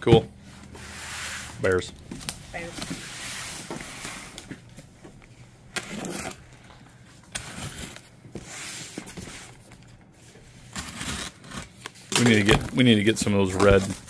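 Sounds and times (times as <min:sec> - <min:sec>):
knife slitting packing tape: 0:10.7 - 0:12.4.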